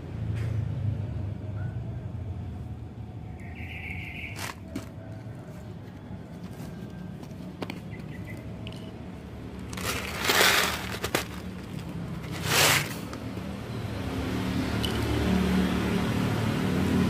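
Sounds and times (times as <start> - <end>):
kibble pouring onto concrete: 9.7 - 13.0.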